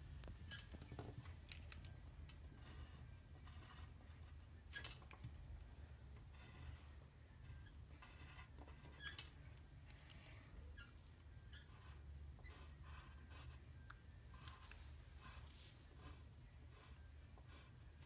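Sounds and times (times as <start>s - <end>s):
pen scratching on paper: 2.5s - 4.4s, 6.2s - 9.1s, 11.6s - 13.7s, 14.3s - 18.0s.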